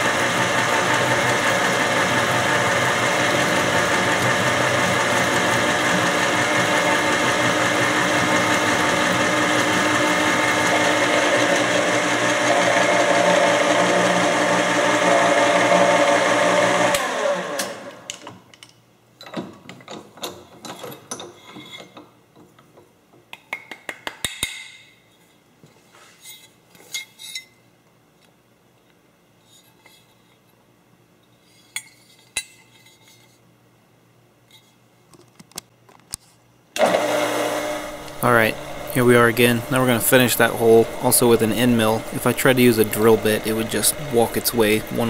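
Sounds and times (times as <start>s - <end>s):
milling machine cutting metal: 0.0s - 17.9s, 36.8s - 45.0s.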